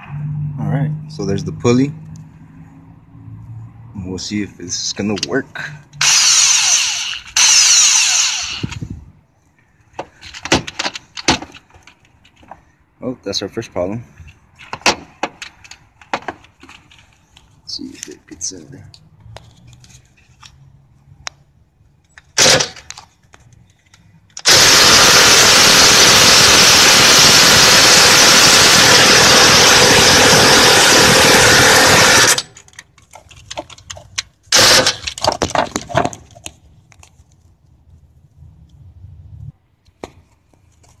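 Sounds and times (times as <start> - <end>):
impact wrench hammering: 22.4 - 22.9, 34.5 - 35.8.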